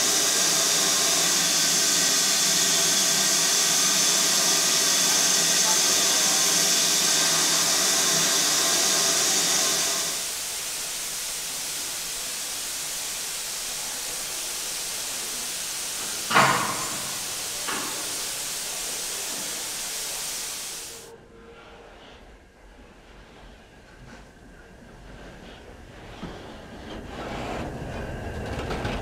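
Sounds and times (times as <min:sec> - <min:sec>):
steam hissing: 0:00.0 - 0:21.1.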